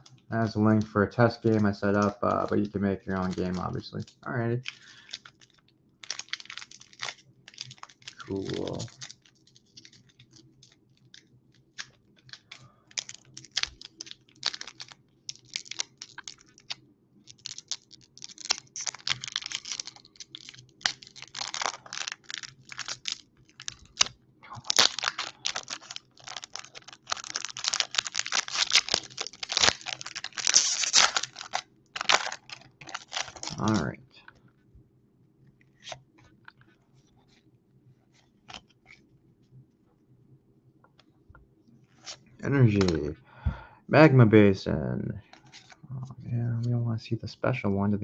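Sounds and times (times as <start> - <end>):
foil wrapper crinkling and tearing: 0.4 - 34.0, 42.0 - 43.1.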